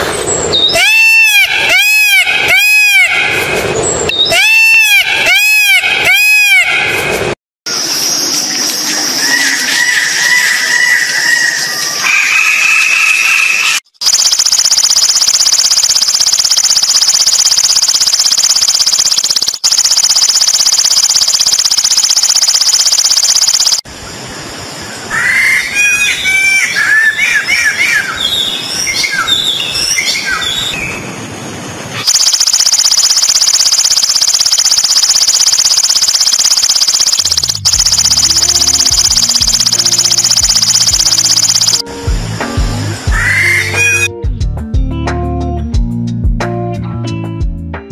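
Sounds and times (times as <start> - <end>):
high-pitched buzzing drone: 14.0 - 23.8, 32.0 - 44.1
bird whistles and chirps: 25.9 - 31.0.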